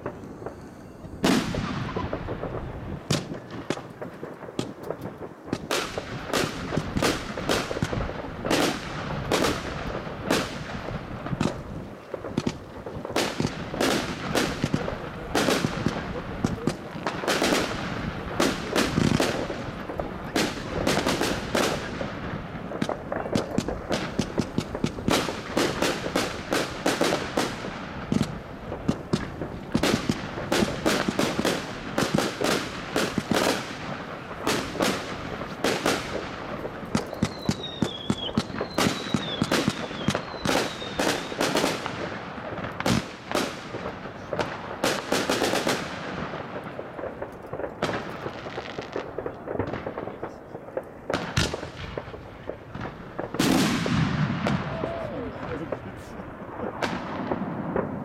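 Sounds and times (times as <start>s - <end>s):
firework whistles falling: 0.0s - 2.3s, 36.9s - 41.8s
fireworks launching and bursting: 0.0s - 58.0s.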